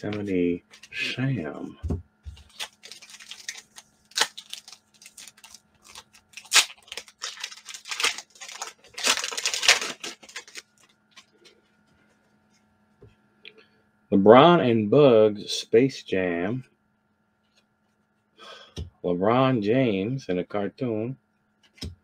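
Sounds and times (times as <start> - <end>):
foil wrapper tearing and crinkling: 2.4 - 11.3.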